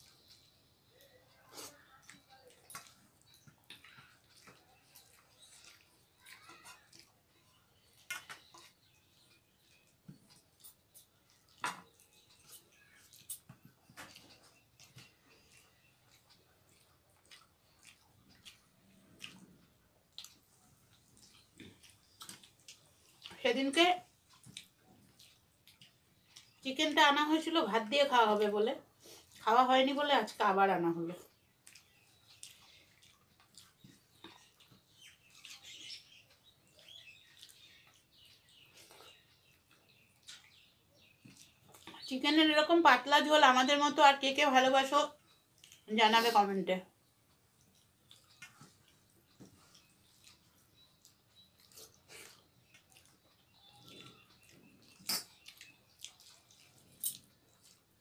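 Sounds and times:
chewing: 0:00.0 - 0:23.4, 0:24.0 - 0:26.6, 0:28.4 - 0:29.5, 0:31.1 - 0:42.1, 0:45.1 - 0:46.3, 0:46.9 - 0:58.0
fingers mixing food on steel plates: 0:00.0 - 0:46.6
lip smacks: 0:09.8 - 0:23.4, 0:47.3 - 0:57.9
fingers squishing wet rice: 0:31.3 - 0:42.1, 0:47.3 - 0:58.0.

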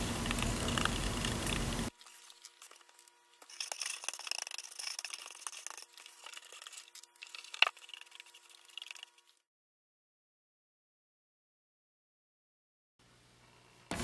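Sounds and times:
faint electrical whine: 0:00.0 - 0:09.4
scratching and rustling: 0:00.3 - 0:09.4.

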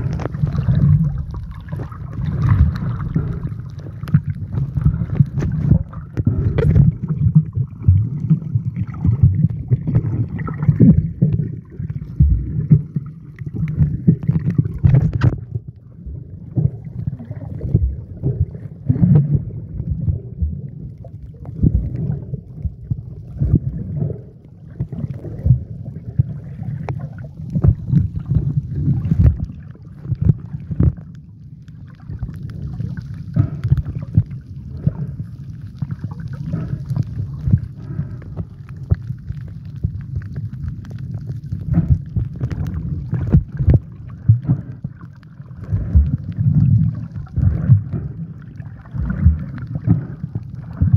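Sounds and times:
underwater sloshing and rumbling: 0:00.0 - 0:50.9
knocks and crackles: 0:13.6 - 0:15.6, 0:41.6 - 0:44.8.

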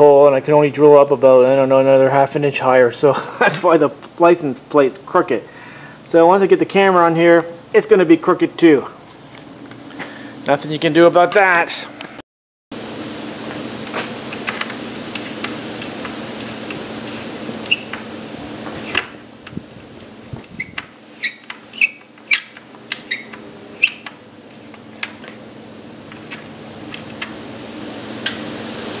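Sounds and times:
steady low hum: 0:12.8 - 0:29.0
screwdriver metal clicks and squeaks: 0:17.6 - 0:18.0, 0:20.5 - 0:24.2.

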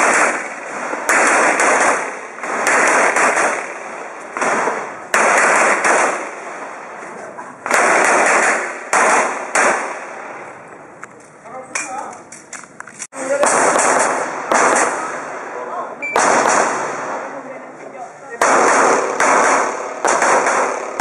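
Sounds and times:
pistol shots with ringing echo: 0:00.0 - 0:06.8, 0:07.6 - 0:10.4, 0:13.2 - 0:17.3, 0:18.4 - 0:21.0.

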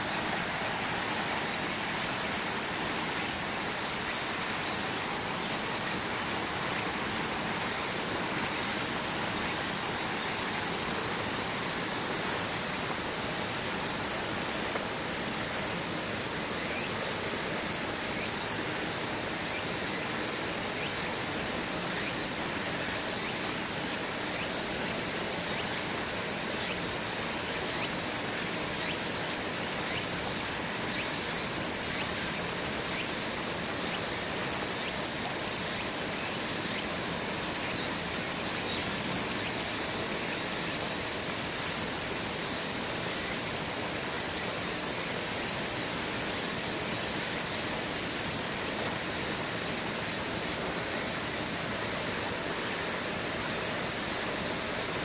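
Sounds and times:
cicada chorus: 0:00.0 - 0:55.0.

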